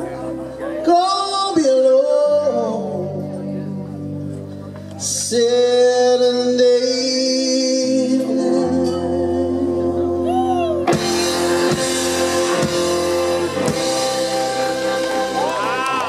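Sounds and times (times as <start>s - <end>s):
blues-rock band playing: 8.3s - 16.0s
heavy band accents: 8.4s - 16.0s.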